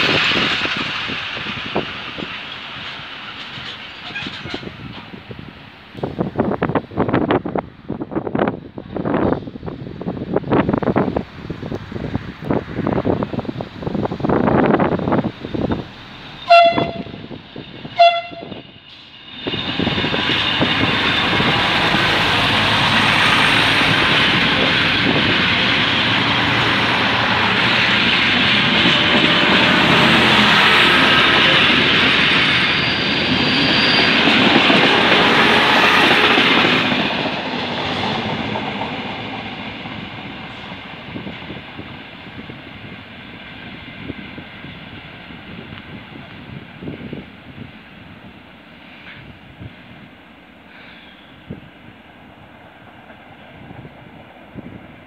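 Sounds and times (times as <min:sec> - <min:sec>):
wind buffeting microphone: 0:00.0 - 0:50.2, 0:51.3 - 0:55.0
diesel railcar engines pulling away: 0:00.0 - 0:55.0
train horn blasts: 0:16.4 - 0:18.7.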